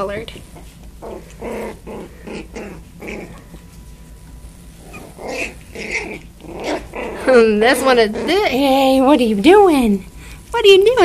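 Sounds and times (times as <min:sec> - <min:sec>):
puppies growling: 0:00.4 - 0:03.8, 0:04.7 - 0:09.7
puppies squeaking: 0:04.8 - 0:08.8.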